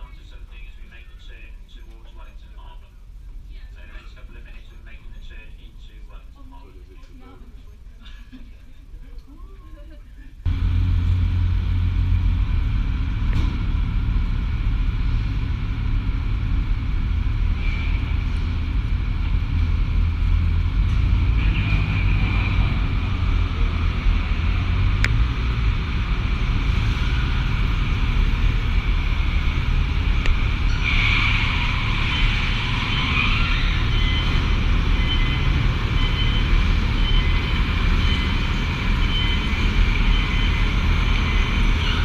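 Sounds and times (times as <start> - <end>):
motorcycle engine rumbling: 10.5 - 32.8.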